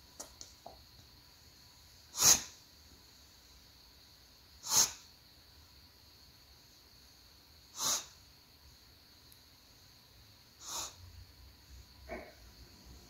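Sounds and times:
dog sneezing: 0:02.1 - 0:02.6, 0:04.6 - 0:05.1, 0:07.7 - 0:08.2, 0:10.6 - 0:11.0.

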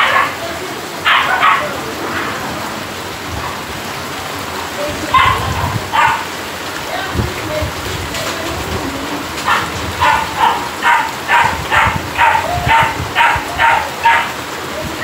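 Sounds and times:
dog barking: 0:00.0 - 0:02.4, 0:05.1 - 0:06.4, 0:09.4 - 0:14.4
steady rain falling: 0:00.0 - 0:15.0.

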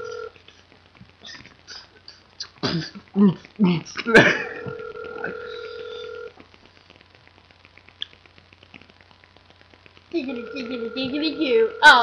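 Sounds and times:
phone ringback tone: 0:00.0 - 0:00.3, 0:04.5 - 0:06.3, 0:10.3 - 0:12.0.

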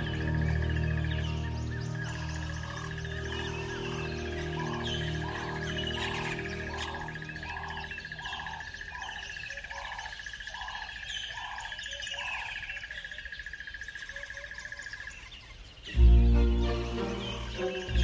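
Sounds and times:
low bird call: 0:00.0 - 0:12.9
birds chirping: 0:00.0 - 0:18.0.

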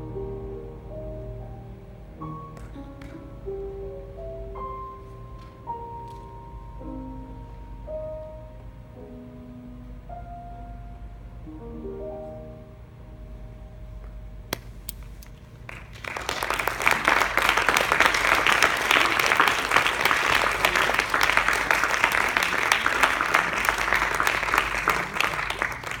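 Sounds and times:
audience applause: 0:15.7 - 0:26.0.

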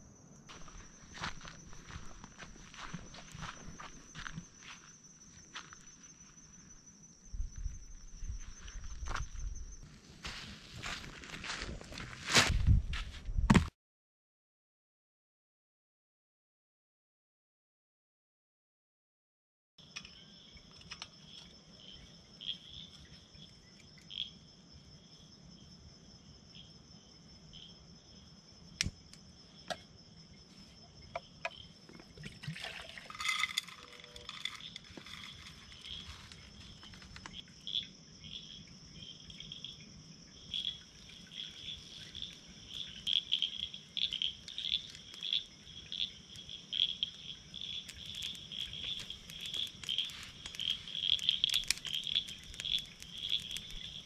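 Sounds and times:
insects chirping: 0:00.0 - 0:13.5, 0:19.8 - 0:54.0
cooking gear clattering: 0:32.5 - 0:36.0
sharp ticks: 0:47.9 - 0:54.0.

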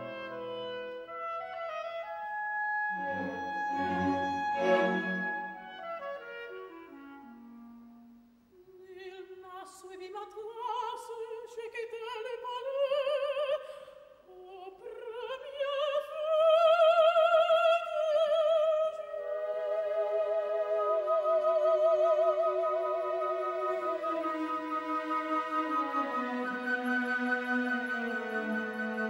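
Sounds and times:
woodwind line: 0:00.0 - 0:08.2, 0:18.6 - 0:29.0
operatic soprano singing: 0:08.7 - 0:29.0.

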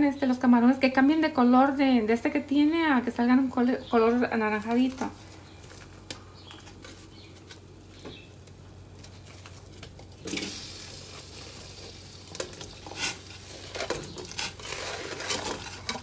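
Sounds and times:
steady hiss: 0:10.2 - 0:13.6.

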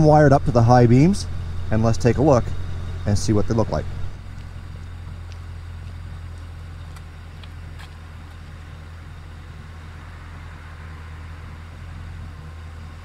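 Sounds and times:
car engine idling: 0:00.0 - 0:13.0
footsteps on wet pavement: 0:04.1 - 0:08.8.

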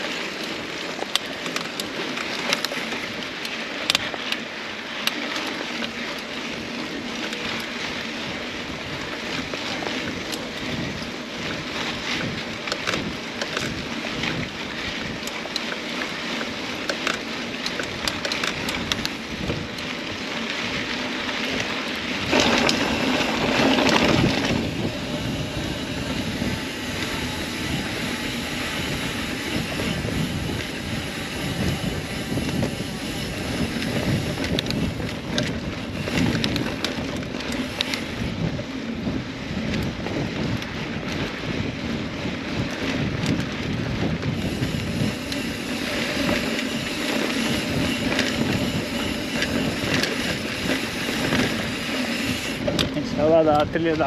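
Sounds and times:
bike rattling: 0:00.0 - 0:54.0
bike tyres on dirt: 0:00.0 - 0:54.0
wind on microphone: 0:17.8 - 0:54.0.

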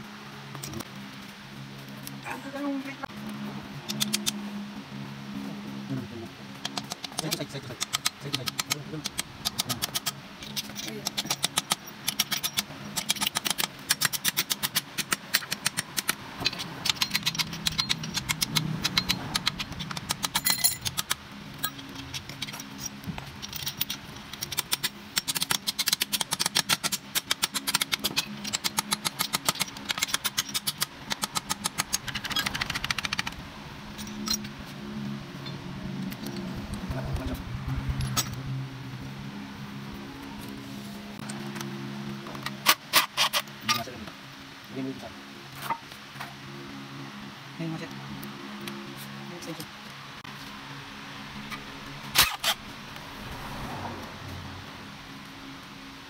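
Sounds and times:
ratchet wrench clicking: 0:06.6 - 0:33.4
metal clinks: 0:16.4 - 0:24.0
low hum: 0:27.9 - 0:42.6.

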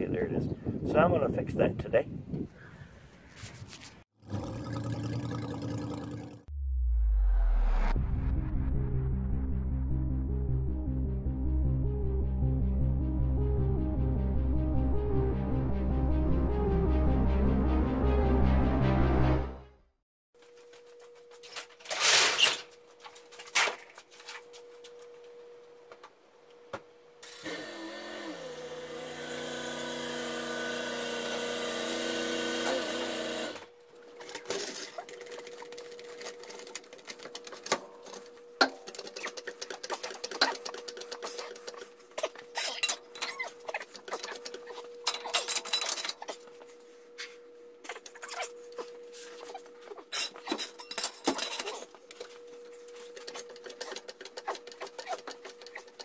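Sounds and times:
metal clanks and scraping: 0:50.1 - 0:51.9.

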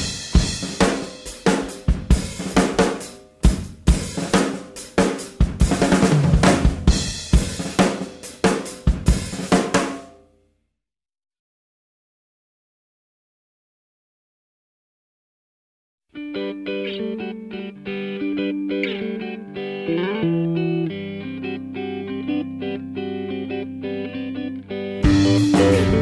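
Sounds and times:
drum kit playing: 0:00.0 - 0:10.2, 0:25.0 - 0:26.0
ringing guitar notes: 0:16.2 - 0:26.0.

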